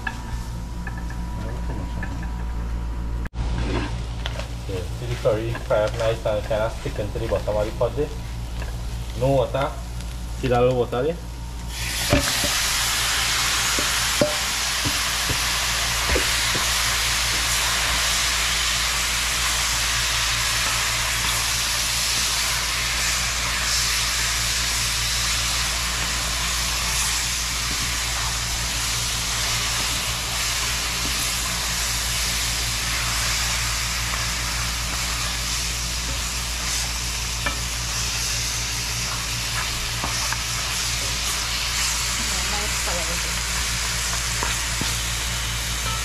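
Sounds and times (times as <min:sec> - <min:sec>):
low hum: 0:00.0 - 0:46.0
food sizzling in a pot: 0:03.4 - 0:10.3, 0:11.5 - 0:46.0.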